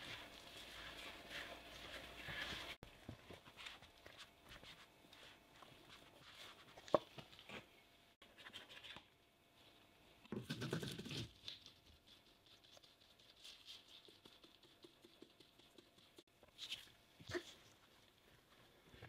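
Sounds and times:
flour sifted through sieve: 0.0 - 2.8
spatula scraping dough in bowl: 0.0 - 2.8.

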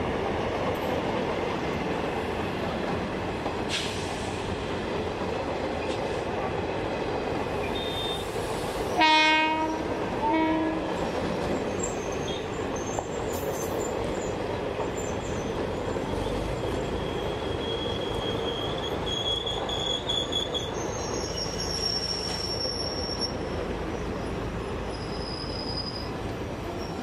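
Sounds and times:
train wheels rumbling on rails: 0.0 - 27.0
wheels squealing: 15.0 - 27.0.

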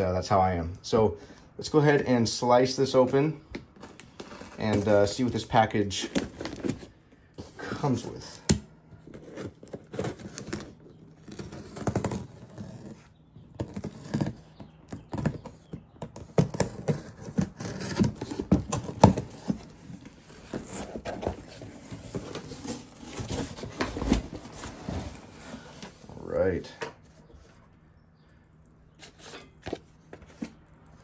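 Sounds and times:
cardboard flaps crinkling: 2.4 - 26.2
packing tape tearing: 3.8 - 6.9, 8.4 - 25.1.

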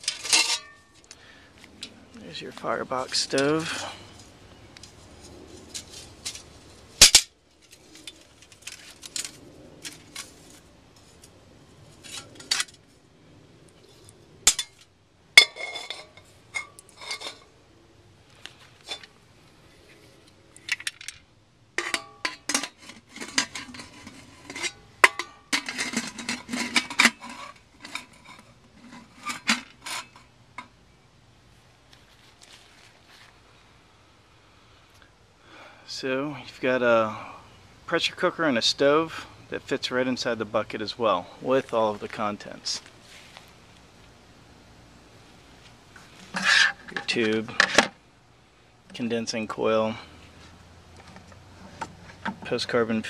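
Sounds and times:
metal pots clanking: 0.0 - 0.9, 15.4 - 17.5, 21.8 - 30.7.

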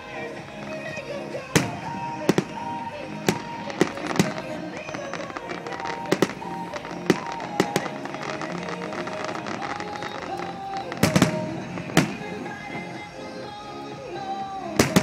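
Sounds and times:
fireworks bursting: 0.0 - 15.0
music playing: 0.0 - 15.0.

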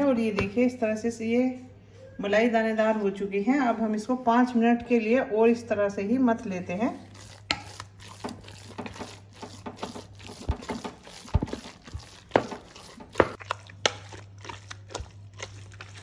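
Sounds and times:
wooden spoon churning cream: 6.7 - 16.0.

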